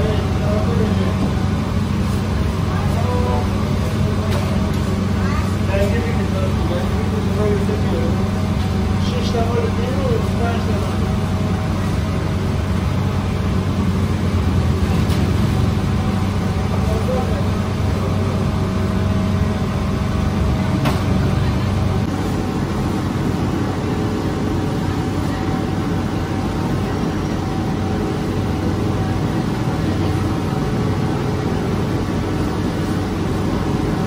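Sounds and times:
oven machinery humming: 0:00.0 - 0:34.0.

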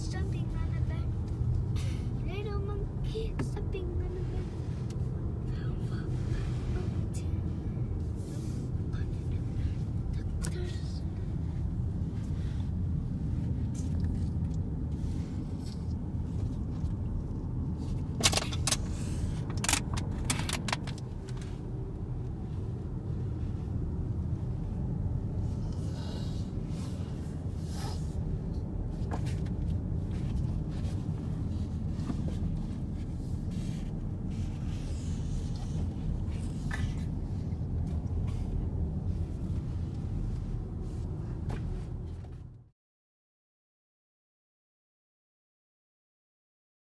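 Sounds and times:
car engine and tyre rumble: 0:00.0 - 0:42.7
sharp clicks and rattles: 0:18.1 - 0:21.5.

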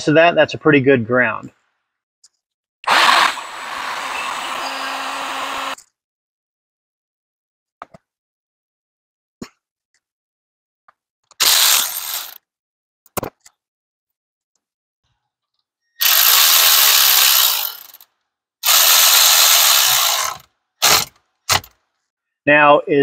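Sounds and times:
cordless electric ratchet running: 0:02.9 - 0:05.8, 0:11.4 - 0:12.4, 0:16.0 - 0:18.0, 0:18.6 - 0:21.7.

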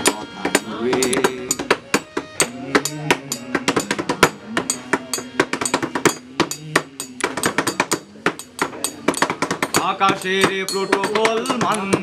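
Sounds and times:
group singing: 0:00.0 - 0:01.8, 0:02.4 - 0:09.2
guitar notes: 0:00.0 - 0:07.3
hand drumming on a table: 0:00.0 - 0:12.0.

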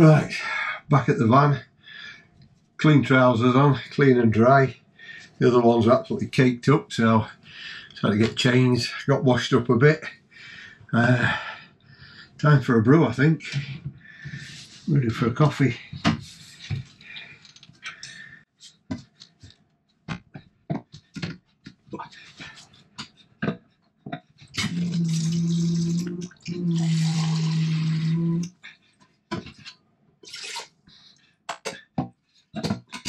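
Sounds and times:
water running into kettle: 0:24.6 - 0:28.2
electric water pump humming: 0:24.6 - 0:28.5.

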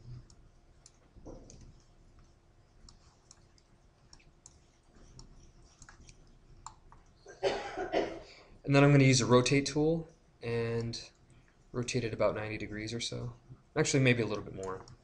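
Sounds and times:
computer mouse clicks: 0:00.0 - 0:07.2.

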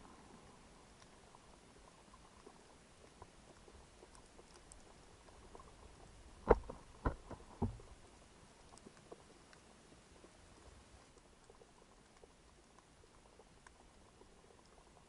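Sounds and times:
faint underwater crackling: 0:00.0 - 0:15.0
short dull knocks: 0:06.4 - 0:07.9.

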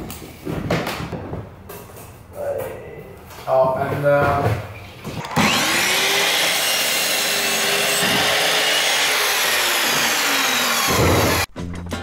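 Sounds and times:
mitre saw motor whine: 0:05.2 - 0:11.5
saw blade rasping through wood: 0:05.4 - 0:11.5.

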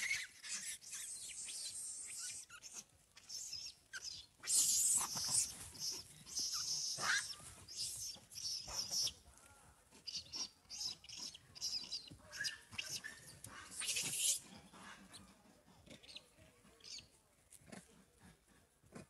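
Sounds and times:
monkey squealing: 0:00.0 - 0:09.1, 0:12.4 - 0:14.4
monkeys squeaking and chirping: 0:00.0 - 0:09.2, 0:10.0 - 0:15.3.

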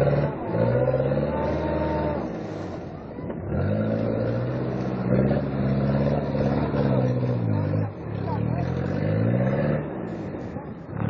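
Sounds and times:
truck engine revving: 0:00.0 - 0:11.0.

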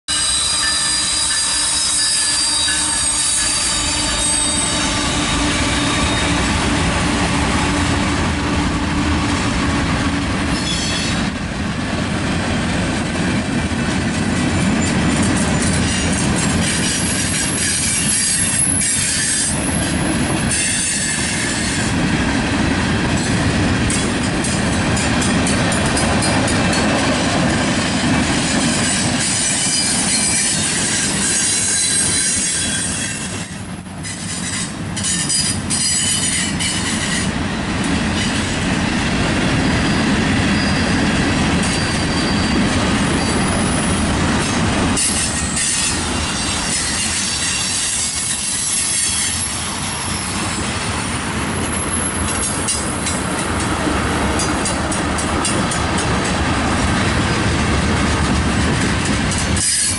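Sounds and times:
high wheel squeal: 0:00.1 - 0:08.0, 0:10.5 - 0:11.3, 0:14.8 - 0:21.9, 0:28.4 - 0:37.4, 0:39.8 - 0:53.4
diesel locomotive: 0:00.1 - 0:59.9
train wheels rumbling on rail: 0:00.1 - 0:59.9
clacking over rail joints: 0:23.1 - 0:38.6, 0:51.6 - 0:59.9.

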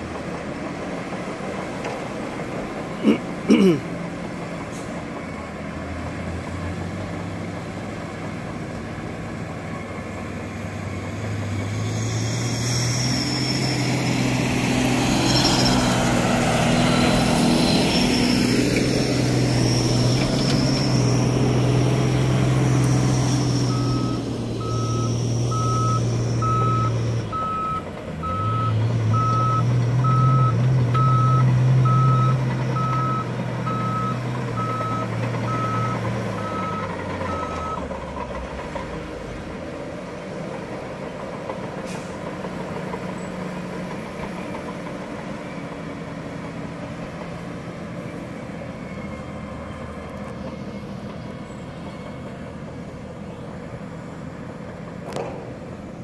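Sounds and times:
bulldozer diesel engine under load: 0:00.0 - 0:56.0
reversing alarm beeping: 0:16.6 - 0:17.5, 0:23.6 - 0:37.9.

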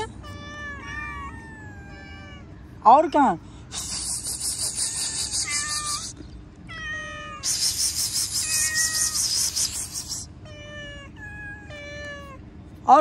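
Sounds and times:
cats meowing: 0:00.0 - 0:02.8, 0:04.0 - 0:12.5
pulsing high rasping hiss: 0:03.7 - 0:06.2, 0:07.4 - 0:10.3.

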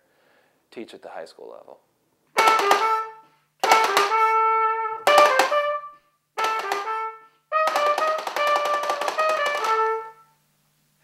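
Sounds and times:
harmonica playing: 0:02.4 - 0:10.3
trumpet playing: 0:02.4 - 0:10.4
drumstick taps on tin box: 0:07.7 - 0:09.8.

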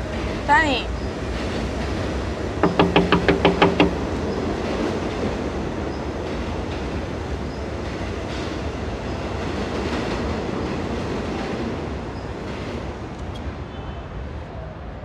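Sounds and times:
faint knocks: 0:02.6 - 0:04.2.

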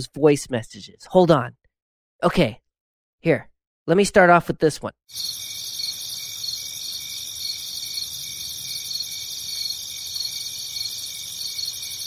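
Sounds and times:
crickets chirping: 0:05.1 - 0:12.0.

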